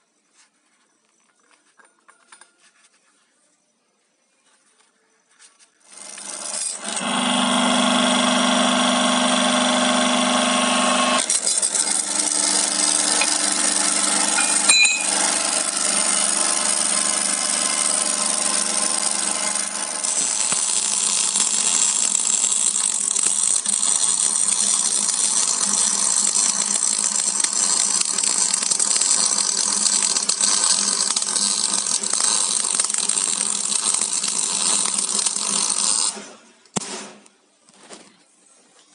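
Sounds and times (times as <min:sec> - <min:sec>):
metal lathe motor running: 0:05.9 - 0:36.2.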